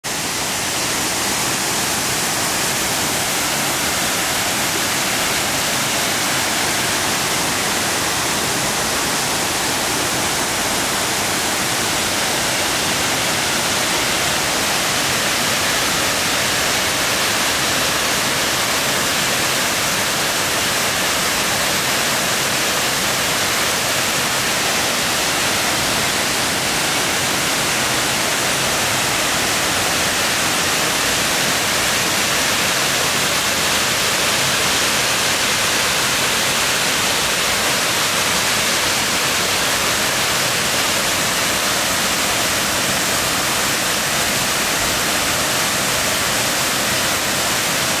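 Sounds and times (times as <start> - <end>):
waterfall rushing: 0.0 - 48.0.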